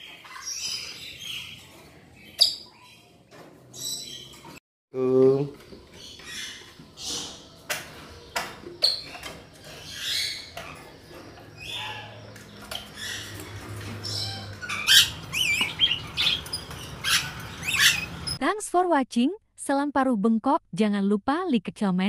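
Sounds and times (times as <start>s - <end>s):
parrots squawking and screeching: 8.8s - 18.4s.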